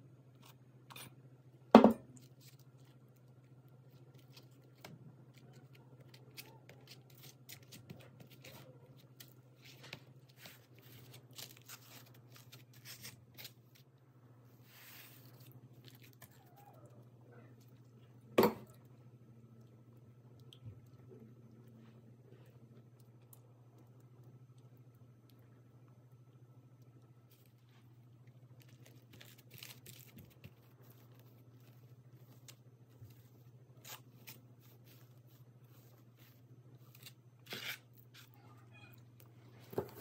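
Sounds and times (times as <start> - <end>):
low steady hum: 0.0 - 40.0.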